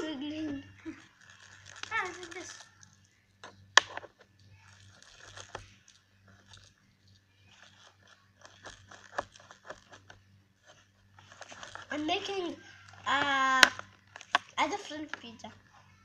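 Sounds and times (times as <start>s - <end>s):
slime sticky crackling: 0.5s - 15.6s.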